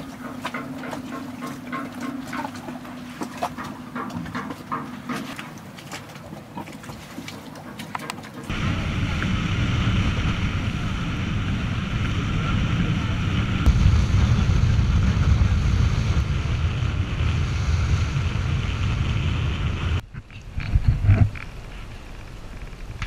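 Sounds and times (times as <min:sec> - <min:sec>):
water rushing along boat hull: 0:00.0 - 0:23.0
wind buffeting microphone: 0:08.5 - 0:23.0.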